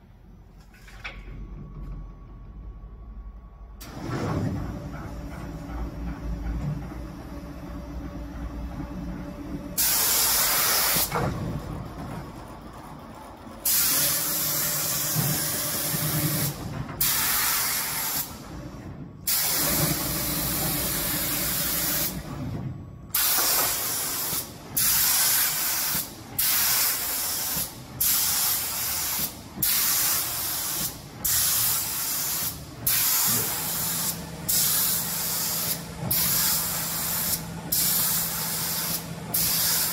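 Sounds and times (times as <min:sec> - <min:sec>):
low machine hum: 0:00.0 - 0:10.4
spray gun hissing in bursts: 0:09.8 - 0:11.1, 0:13.6 - 0:18.4, 0:19.3 - 0:22.2, 0:23.1 - 0:39.9.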